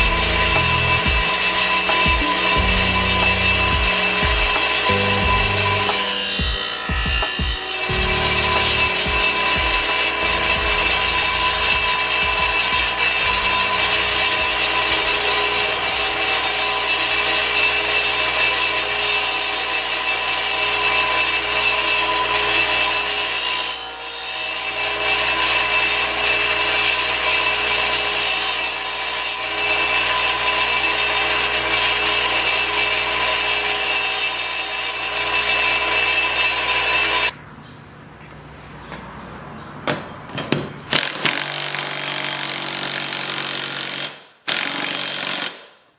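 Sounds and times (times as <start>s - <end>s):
grinder motor hum: 0.0s - 23.5s
grinder wheel scraping steel: 0.0s - 37.4s.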